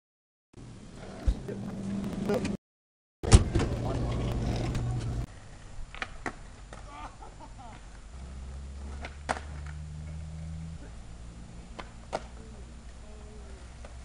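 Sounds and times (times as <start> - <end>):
skateboard clacks on asphalt: 5.9 - 6.9, 8.8 - 9.8, 11.7 - 12.4.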